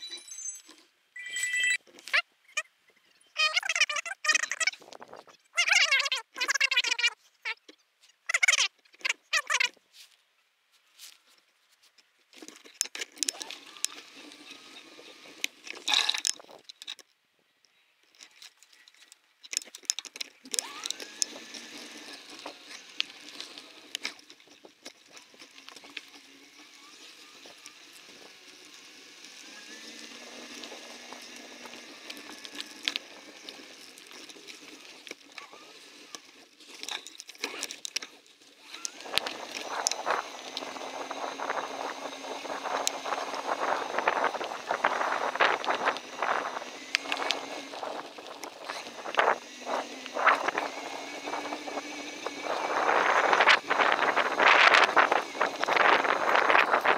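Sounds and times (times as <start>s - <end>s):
bike clicking and rattling: 12.3s - 17.2s, 18.0s - 56.9s.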